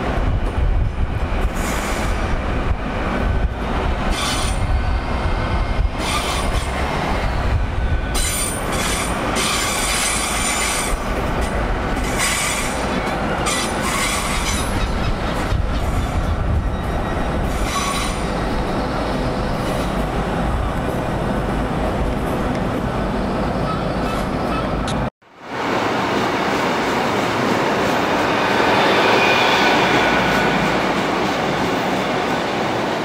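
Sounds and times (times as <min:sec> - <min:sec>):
train rumbling: 0:00.0 - 0:33.0
train wheels squealing: 0:04.1 - 0:11.0, 0:12.1 - 0:19.9, 0:28.5 - 0:30.8.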